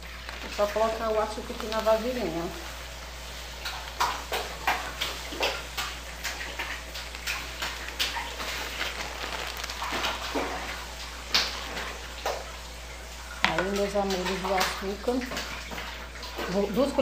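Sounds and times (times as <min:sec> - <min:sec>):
plastic packet crinkling: 0:00.0 - 0:02.6, 0:06.4 - 0:12.0
sugar pouring into canister: 0:07.0 - 0:11.9.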